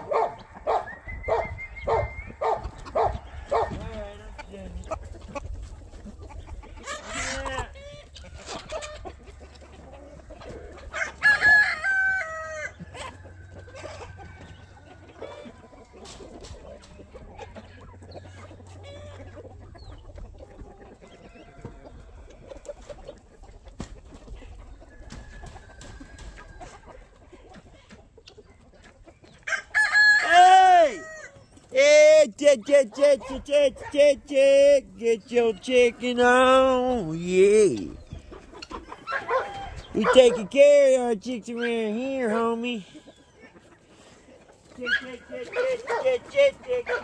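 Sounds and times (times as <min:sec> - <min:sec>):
chickens clucking: 0:00.0 - 0:47.0
rooster crowing: 0:10.9 - 0:12.8, 0:29.5 - 0:31.3.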